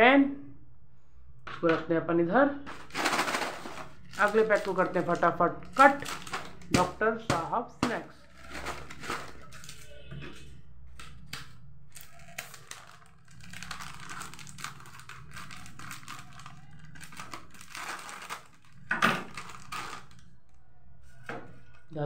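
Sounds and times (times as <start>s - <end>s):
plastic packet crinkling: 2.7s - 9.9s, 11.0s - 20.4s
scissors cutting plastic: 2.7s - 10.0s, 10.9s - 21.9s.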